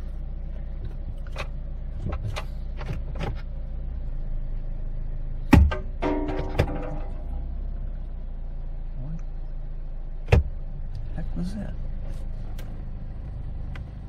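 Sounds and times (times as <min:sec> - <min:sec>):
car engine idling: 0:00.0 - 0:14.0
loud thump: 0:05.5 - 0:07.3.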